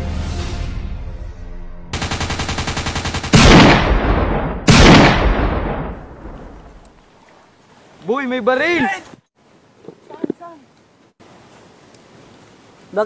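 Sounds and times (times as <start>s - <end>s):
automatic gunfire burst: 2.0s - 5.6s
heavy single gunshots with echo: 3.3s - 6.6s.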